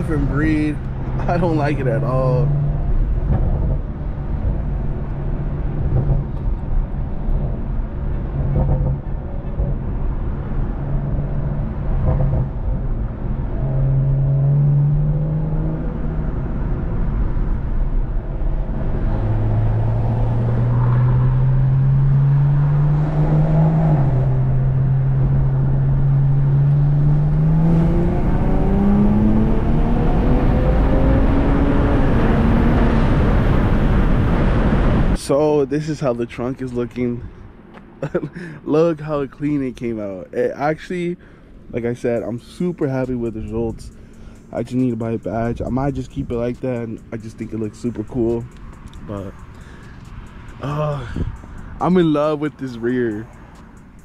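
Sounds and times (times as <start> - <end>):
car engine accelerating: 0.0 - 35.2
road rumble: 0.0 - 54.0.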